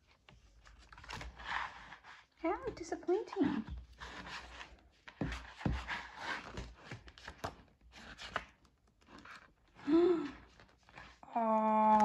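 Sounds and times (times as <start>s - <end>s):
photobook pages flipping: 0.0s - 2.3s, 3.8s - 11.2s
pages flapping and tapping: 0.1s - 2.0s, 3.8s - 9.6s.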